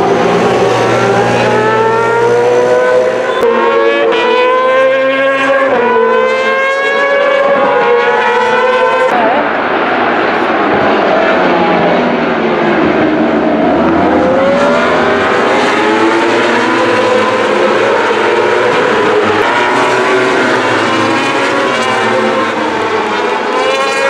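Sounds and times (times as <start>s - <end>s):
racing motorcycles passing: 0.0s - 9.4s.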